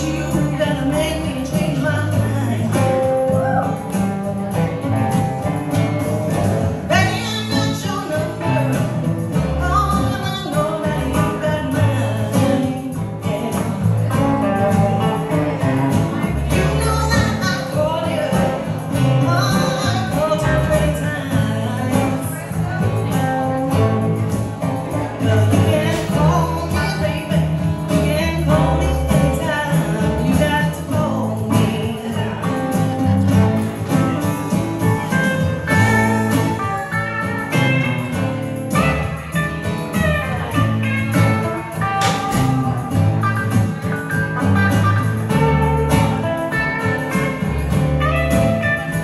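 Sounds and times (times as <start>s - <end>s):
woman singing: 0.0s - 3.9s, 6.9s - 24.2s, 24.9s - 33.5s
acoustic guitar: 0.0s - 49.0s
electric bass: 0.0s - 49.0s
electric guitar: 0.0s - 49.0s.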